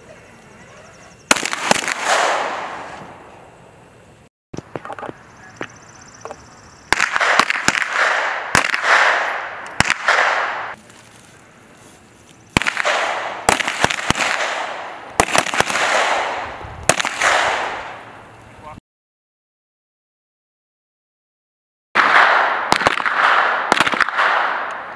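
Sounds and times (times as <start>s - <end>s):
pistol shots with echo: 1.3s - 3.3s, 6.9s - 10.8s, 12.6s - 18.1s, 22.0s - 24.9s.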